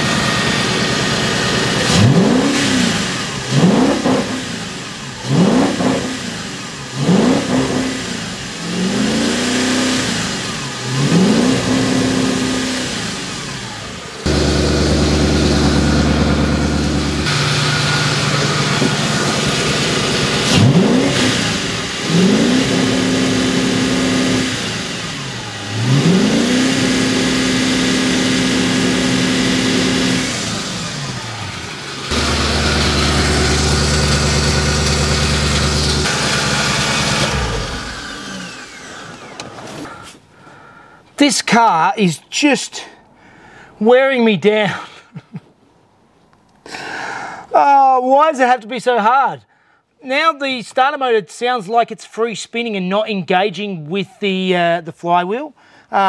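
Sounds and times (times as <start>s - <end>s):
car engine idling and revving: 0.0s - 40.2s.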